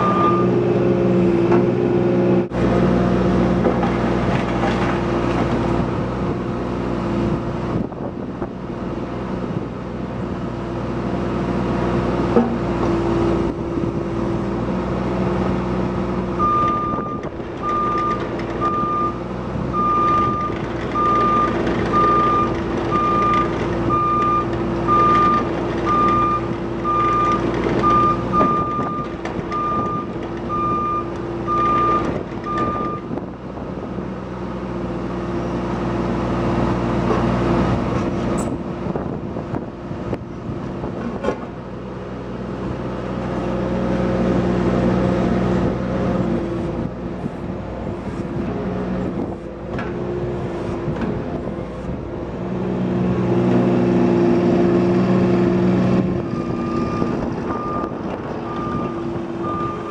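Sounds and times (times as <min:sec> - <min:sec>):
travel alarm beeping: 0:00.0 - 0:00.5, 0:16.4 - 0:19.2, 0:19.8 - 0:29.0, 0:57.5 - 0:59.9
excavator diesel engine running: 0:00.0 - 0:59.9.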